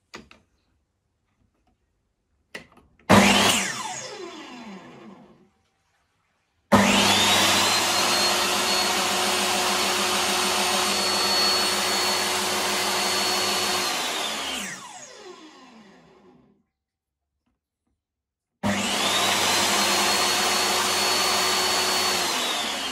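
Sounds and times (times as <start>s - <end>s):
table saw motor running: 3.1s - 5.4s, 6.7s - 16.5s, 18.6s - 22.9s
saw blade braking whine: 6.8s - 16.0s.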